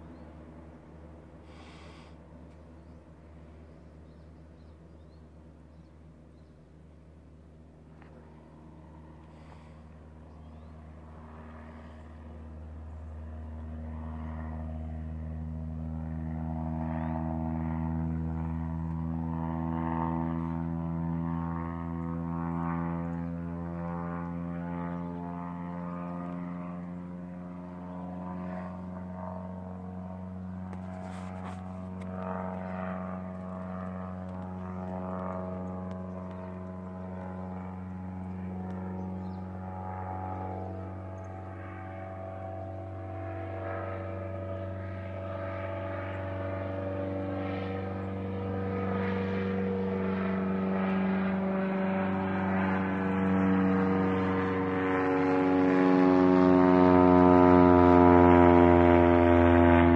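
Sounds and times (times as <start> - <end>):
propeller engine droning: 0.0 - 59.9.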